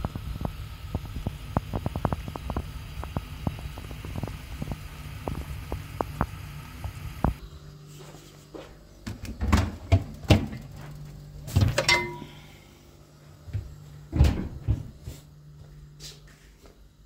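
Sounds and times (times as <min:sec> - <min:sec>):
footsteps on hard floor: 0:07.9 - 0:08.8, 0:14.6 - 0:16.8
fridge door opening and shutting: 0:09.0 - 0:12.0, 0:13.5 - 0:15.0
glass bottle clinking: 0:11.8 - 0:12.4
door closing thump: 0:14.1 - 0:14.9.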